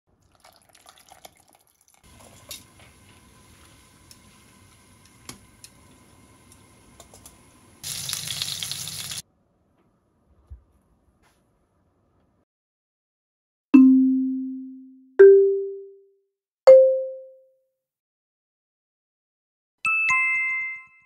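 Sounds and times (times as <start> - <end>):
water boiling in saucepan: 0.1 - 9.2
liquid pouring into blender jug: 0.2 - 2.6
oil sizzling in a pan: 2.0 - 9.2.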